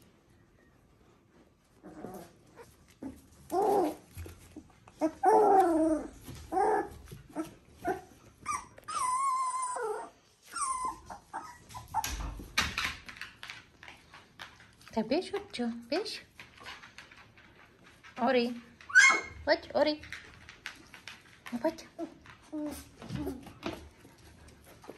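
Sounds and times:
puppies whining and yelping: 0:01.7 - 0:12.4, 0:18.9 - 0:19.4.

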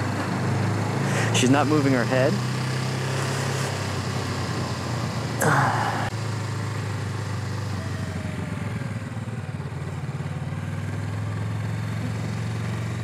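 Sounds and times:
motorcycle engine idling: 0:06.2 - 0:13.0.

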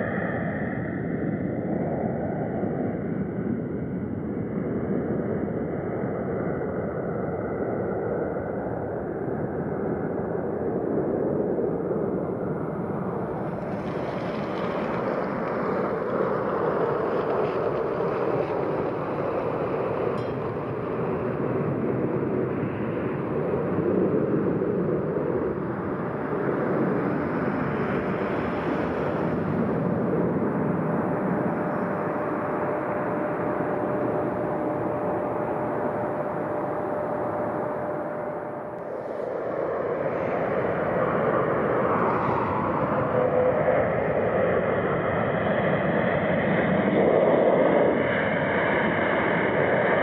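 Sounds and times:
jet engines roaring: 0:11.6 - 0:50.0
thin steady tone: 0:17.6 - 0:43.9.

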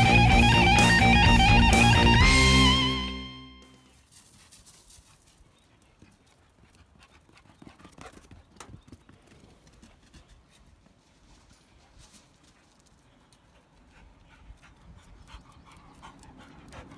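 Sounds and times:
dog paws thudding on dirt: 0:03.9 - 0:15.2.

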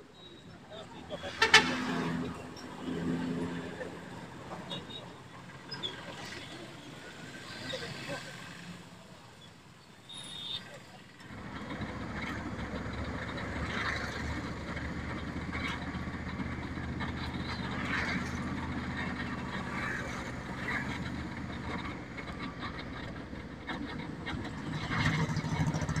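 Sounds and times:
road traffic: 0:00.0 - 0:26.0
vehicle engine running: 0:11.2 - 0:26.0.

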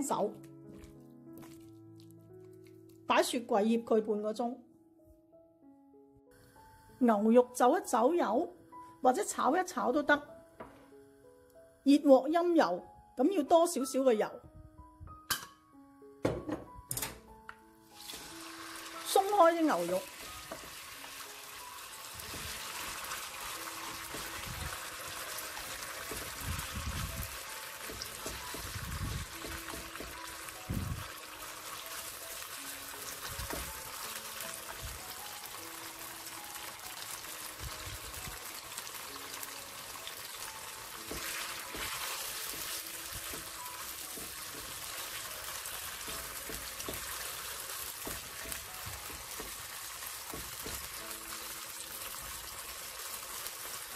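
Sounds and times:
beef sizzling in hot oil: 0:17.8 - 0:53.9.

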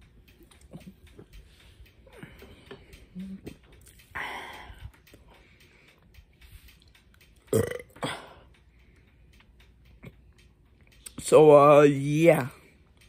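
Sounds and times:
person burping: 0:07.5 - 0:08.4.

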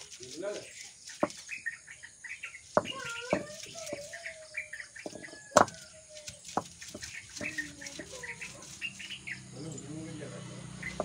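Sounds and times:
stone roller grinding on stone: 0:00.0 - 0:01.5, 0:05.0 - 0:09.2
birds chirping: 0:00.0 - 0:11.0.

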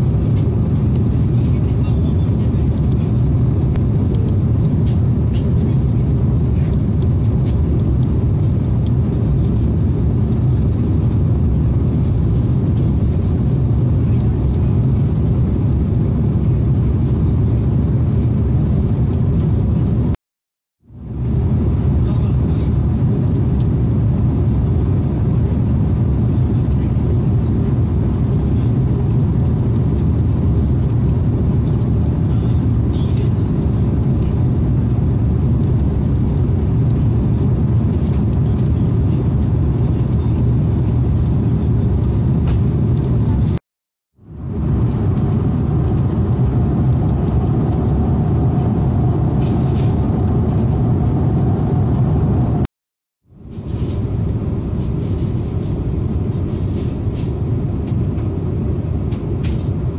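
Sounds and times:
airplane cabin drone: 0:00.0 - 0:20.2, 0:20.8 - 0:43.6, 0:44.2 - 0:52.7, 0:53.3 - 0:59.9.

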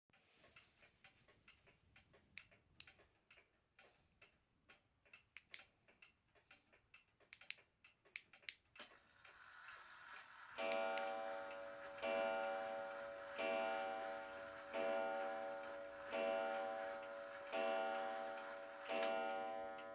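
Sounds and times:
clock ticking: 0:00.1 - 0:19.9
clock striking mechanism whirring: 0:08.8 - 0:19.9
clock gong strike: 0:10.6 - 0:19.9.

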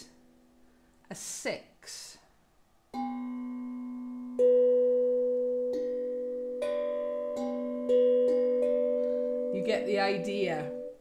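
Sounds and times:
steel tongue drum notes: 0:02.9 - 0:11.0.

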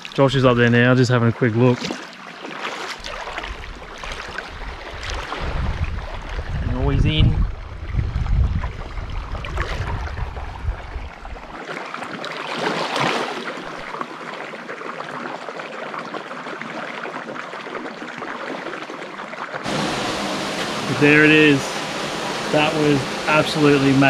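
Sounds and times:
water splashing and sloshing: 0:00.0 - 0:24.0
wind buffeting microphone: 0:03.3 - 0:11.5.

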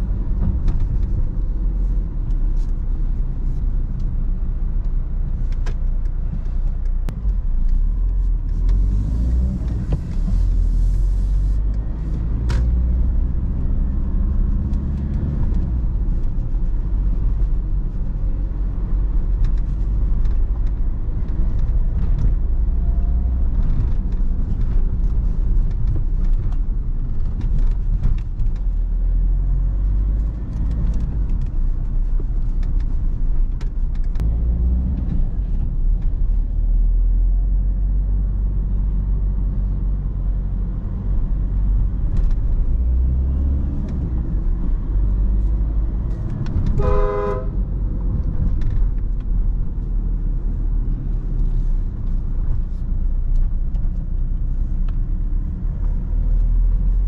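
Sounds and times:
road rumble: 0:00.0 - 0:57.0
car horn toot: 0:46.8 - 0:47.6.

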